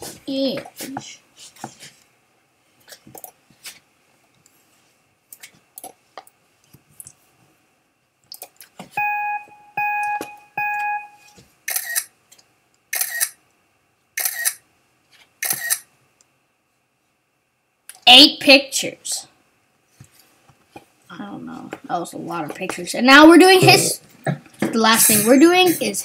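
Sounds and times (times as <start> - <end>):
countdown beeps: 9.0 - 11.3
camera shutter clicks: 11.7 - 12.1, 13.0 - 13.4, 14.2 - 14.6, 15.4 - 15.9.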